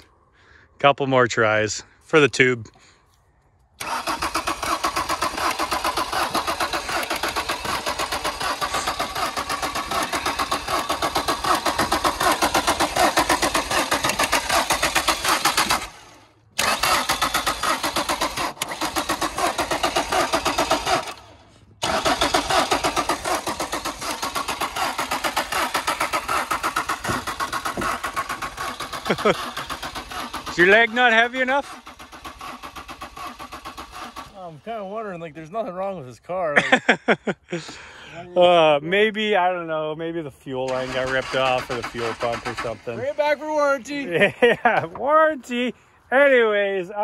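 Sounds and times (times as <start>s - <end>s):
car engine cranking on starter: 3.8s - 34.6s, 40.6s - 43.8s.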